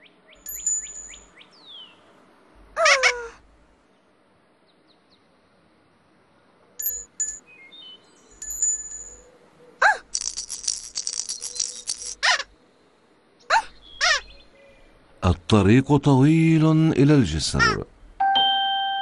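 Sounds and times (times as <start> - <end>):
jingling chimes: 0.4 - 1.3, 6.8 - 7.5, 8.4 - 9.3, 10.2 - 12.2
short high bell tones: 18.2 - 19.0.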